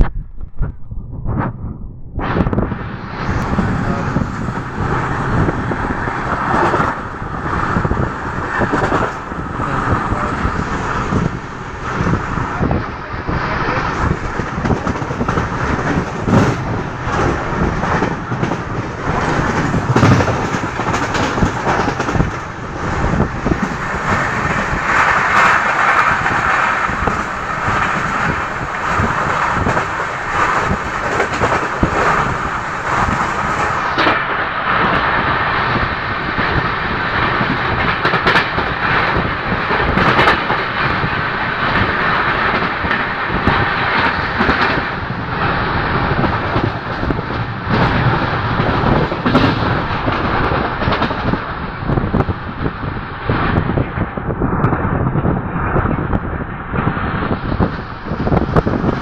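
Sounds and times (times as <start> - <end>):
passing train: 0.0 - 59.0
train wheel and wind noise: 0.0 - 59.0
wheels knocking on track: 13.9 - 52.4.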